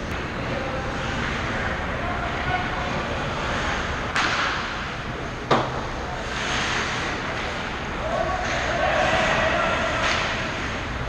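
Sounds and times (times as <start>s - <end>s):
hockey stick hitting puck: 4.1s - 4.8s, 9.2s - 10.8s.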